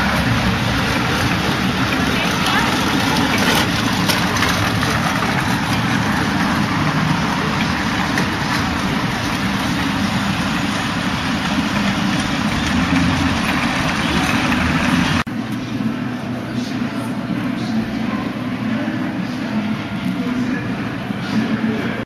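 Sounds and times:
vehicle engine idling: 0.0s - 15.3s
street traffic: 0.0s - 22.0s.

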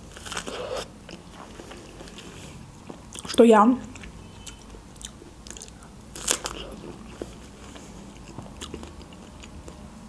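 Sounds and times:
biting and chewing strawberry: 0.0s - 9.9s.

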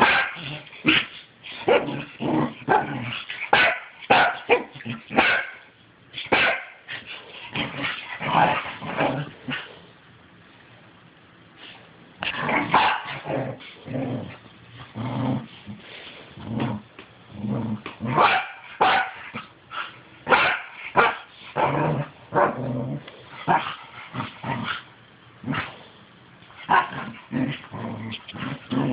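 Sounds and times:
dogs barking: 0.0s - 1.1s, 3.5s - 5.6s, 6.3s - 6.8s, 12.7s - 13.2s, 18.2s - 19.3s, 20.3s - 21.3s
dogs growling: 1.6s - 3.5s, 12.2s - 18.2s, 21.6s - 25.7s, 26.7s - 28.9s.

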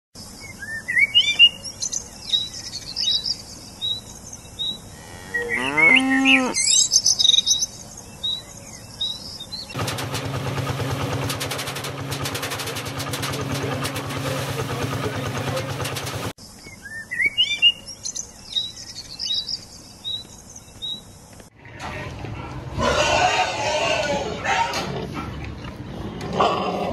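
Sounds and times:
birds chirping: 0.2s - 9.8s, 13.0s - 21.5s
cow mooing: 4.9s - 6.6s
tractor diesel engine running: 9.8s - 16.4s.

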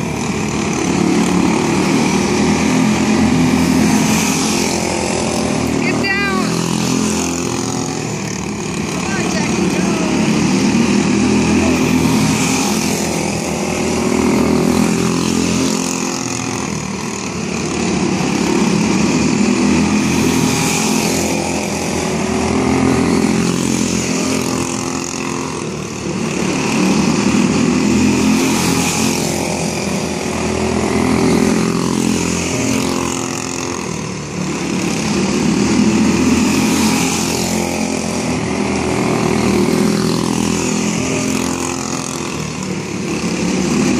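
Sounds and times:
race car engines passing: 0.0s - 43.9s.

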